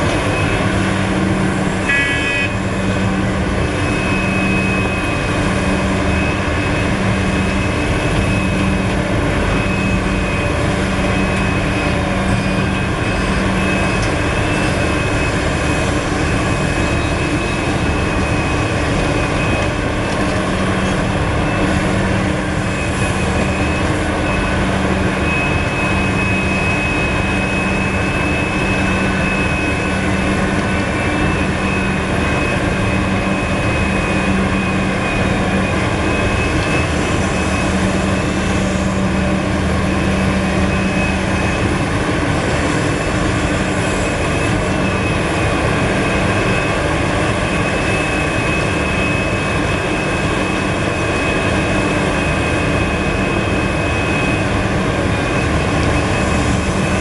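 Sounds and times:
excavator diesel engine under load: 0:00.0 - 0:57.0
high whine: 0:00.0 - 0:57.0.

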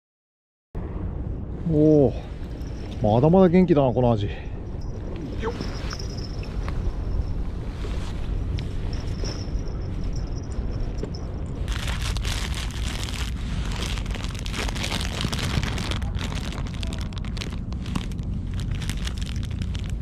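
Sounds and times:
wind rumble on microphone: 0:00.8 - 0:20.0
plastic wrapper crinkling: 0:11.7 - 0:20.0.

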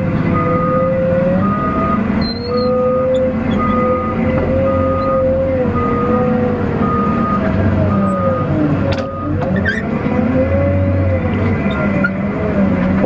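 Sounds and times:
loader engine whining under load: 0:00.0 - 0:13.0
backup alarm beeping: 0:00.4 - 0:09.4.

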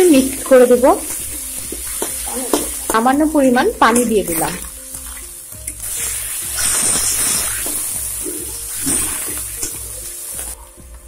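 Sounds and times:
water sizzling in hot oil: 0:00.0 - 0:11.0
spatula stirring: 0:04.0 - 0:10.6.

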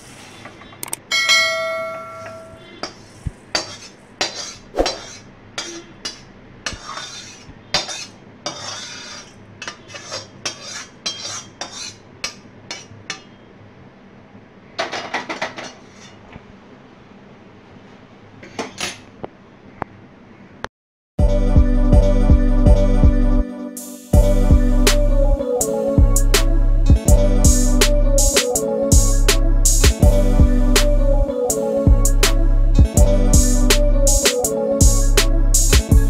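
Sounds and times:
wok clanging against metal bowl: 0:01.1 - 0:07.0
metal spoon scraping a bowl: 0:02.3 - 0:13.5, 0:15.5 - 0:16.2.

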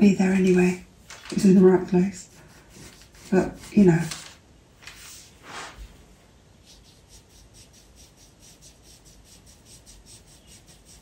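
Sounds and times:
pencil scratching on paper: 0:01.8 - 0:04.2, 0:06.6 - 0:11.0.

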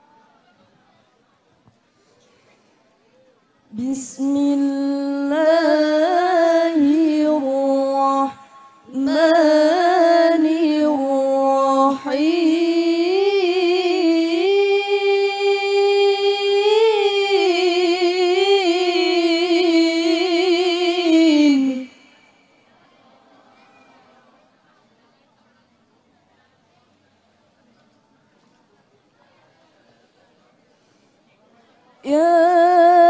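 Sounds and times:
woman chanting into a microphone: 0:03.7 - 0:22.7, 0:32.0 - 0:33.0.

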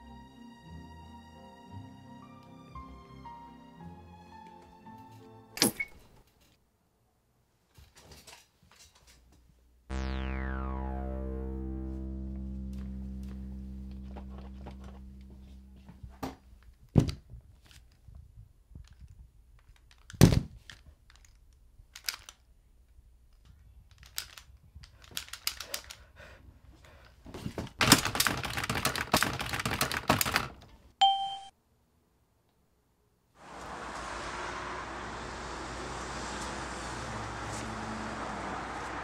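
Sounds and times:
sustained synth chord: 0:09.9 - 0:16.4
rapid keyboard key clatter: 0:27.8 - 0:30.6.

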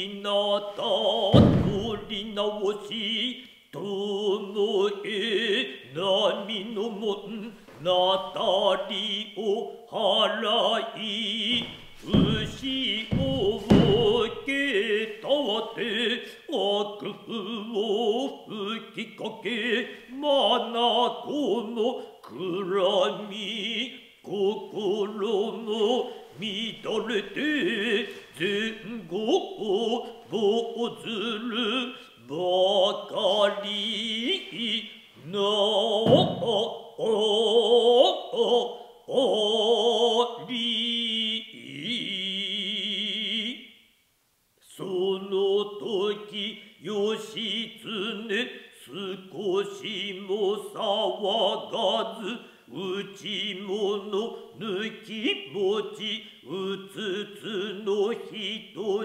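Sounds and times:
foot stamp on wooden stage: 0:01.3 - 0:02.3, 0:11.5 - 0:14.6, 0:36.0 - 0:36.5
chorus chanting in unison: 0:07.0 - 0:17.5.

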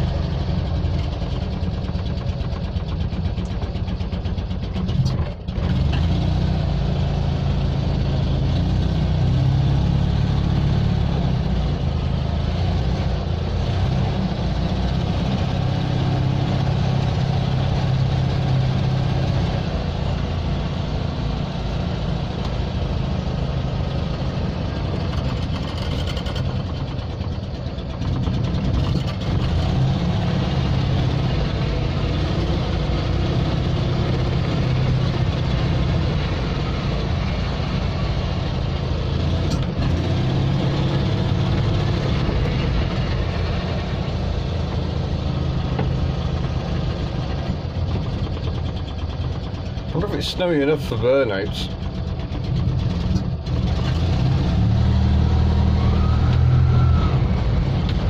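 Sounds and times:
small engine running steadily: 0:00.0 - 0:58.0.

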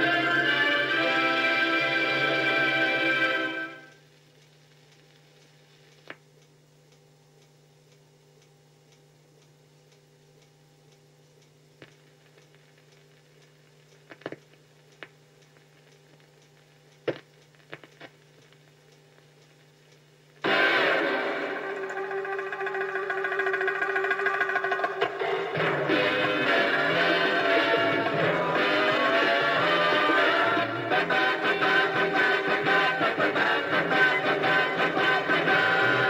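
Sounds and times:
film music: 0:00.0 - 0:03.9, 0:20.4 - 0:36.0
film soundtrack hum: 0:00.0 - 0:36.0
film clicks and pops: 0:04.3 - 0:06.6, 0:11.3 - 0:20.6.

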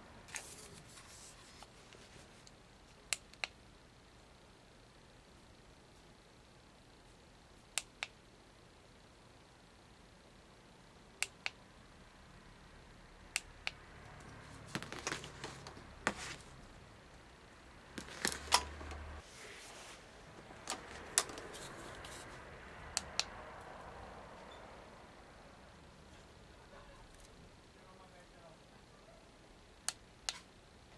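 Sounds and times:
plastic sticks rattling and rubbing: 0:14.7 - 0:16.5, 0:18.0 - 0:19.1, 0:20.4 - 0:22.3.

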